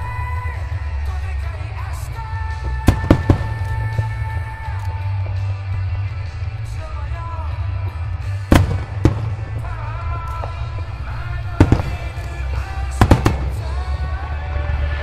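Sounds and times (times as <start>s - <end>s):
rock music with singing: 0.0s - 15.0s
fireworks bursting: 2.2s - 5.1s, 8.4s - 14.1s.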